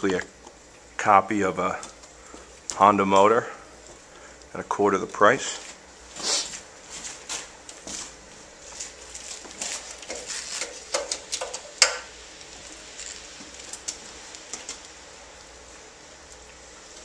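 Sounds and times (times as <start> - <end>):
rustling: 5.5 - 11.7, 12.4 - 14.9.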